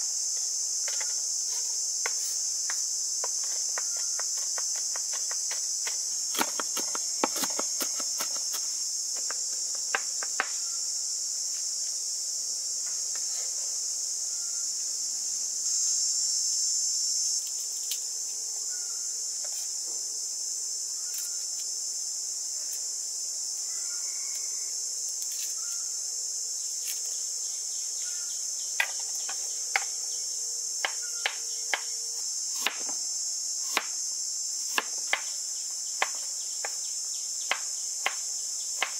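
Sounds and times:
high-pitched insect chorus: 0.0s - 38.9s
knife chopping on wooden board: 2.0s - 8.6s.

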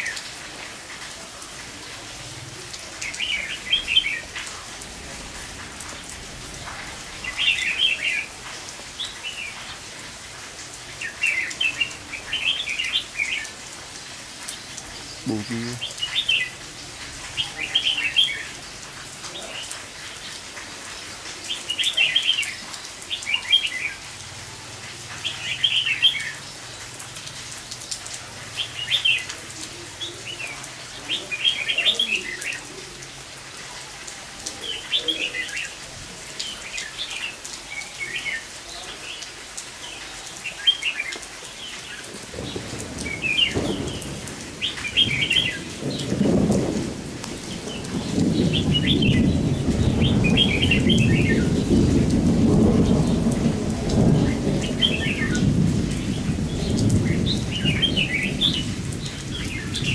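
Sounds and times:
steady rain: 0.0s - 59.9s
thunder rumble: 42.1s - 59.9s.

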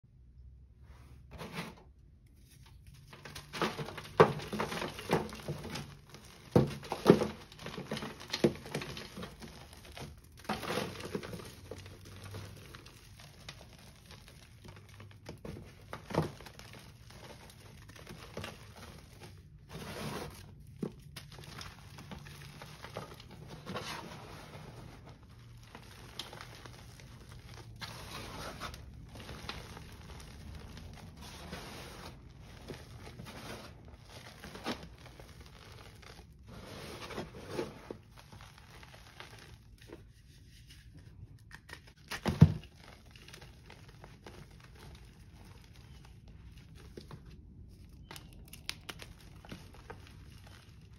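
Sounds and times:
hands crushing chalk pieces: 24.1s - 36.4s, 37.7s - 50.9s.

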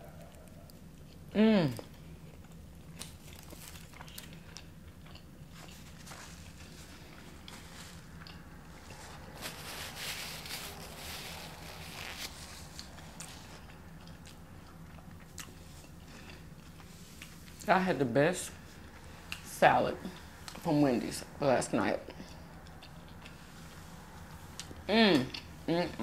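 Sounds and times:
person biting and chewing food: 0.0s - 17.7s.

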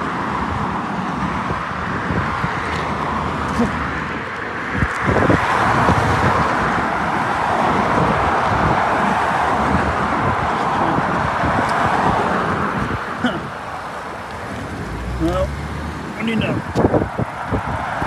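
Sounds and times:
loud steady rushing noise: 0.0s - 18.0s
footsteps on asphalt: 1.1s - 7.2s, 8.6s - 14.8s, 15.9s - 18.0s.

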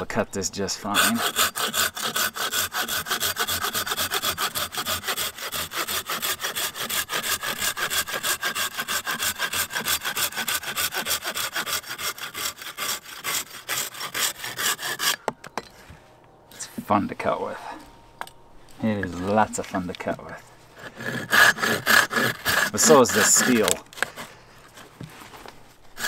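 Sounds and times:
hand saw cutting branch: 0.9s - 15.2s, 20.8s - 25.0s.

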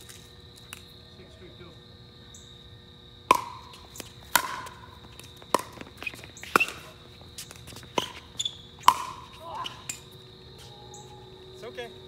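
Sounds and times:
ball bouncing on hard court: 3.3s - 10.0s
paddles hitting plastic ball: 3.3s - 10.0s.

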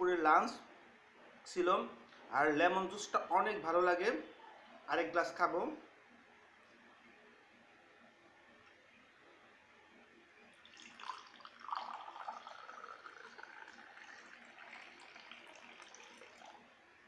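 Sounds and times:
juice pouring into glass: 10.5s - 16.7s.

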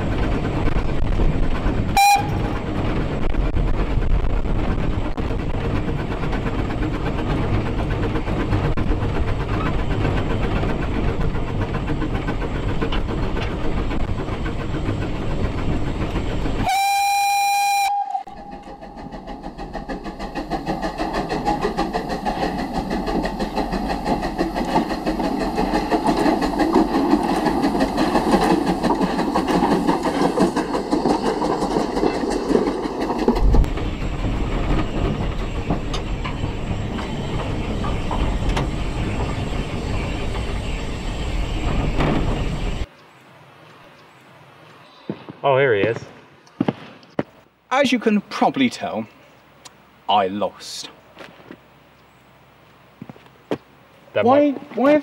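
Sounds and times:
steam locomotive running: 0.0s - 45.0s
locomotive working uphill: 0.0s - 55.0s
steam whistle blast: 2.0s - 2.4s, 16.6s - 18.7s.

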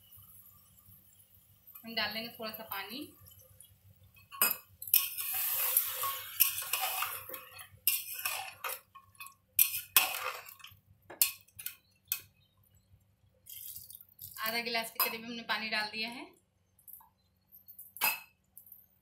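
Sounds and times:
frying meat: 0.0s - 12.4s, 13.4s - 15.1s
metal spoon scraping pot: 4.2s - 12.2s
water pouring into pot: 5.0s - 10.7s, 13.4s - 14.5s.

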